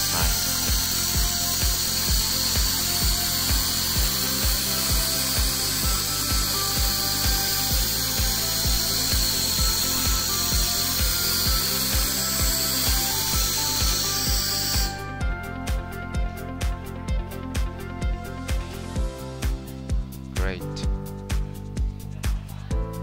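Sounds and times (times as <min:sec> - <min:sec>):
laser cleaning hiss: 0:00.0 - 0:15.0
background music with beat: 0:00.0 - 0:23.0.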